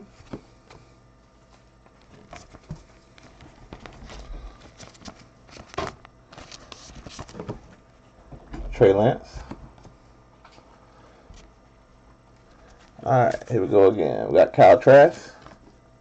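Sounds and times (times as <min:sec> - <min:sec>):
plastic card sleeve rustling: 0:01.4 - 0:07.6.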